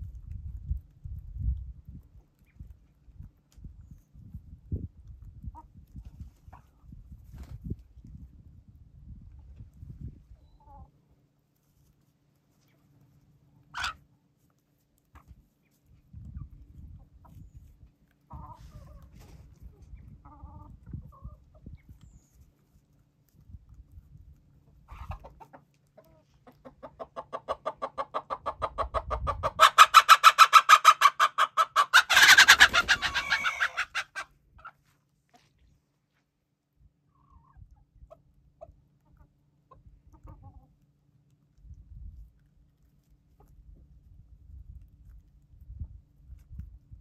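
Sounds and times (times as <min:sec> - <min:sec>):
chicken clucking rapidly: 0:01.4 - 0:08.2, 0:13.6 - 0:14.1, 0:15.1 - 0:22.4, 0:23.4 - 0:34.8, 0:37.0 - 0:41.0.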